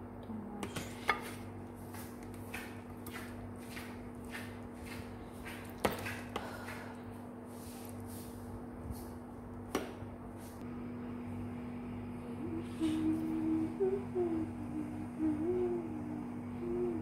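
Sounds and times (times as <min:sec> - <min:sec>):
low hum: 0:06.4 - 0:17.0.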